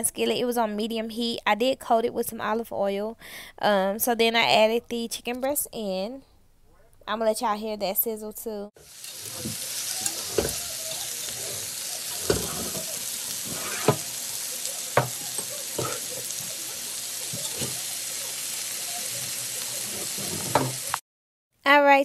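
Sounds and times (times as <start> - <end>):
chicken sizzling in oil: 8.8 - 21.0
oil popping: 8.8 - 21.0.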